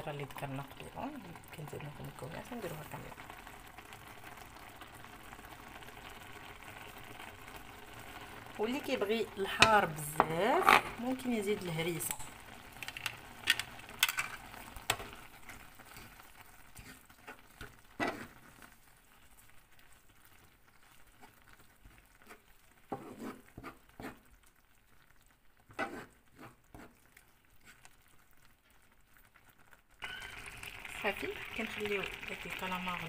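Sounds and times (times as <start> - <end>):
food sizzling in a frying pan: 0.0 - 33.0
spatula scraping a pan: 12.9 - 18.8, 20.8 - 24.4, 25.7 - 28.1.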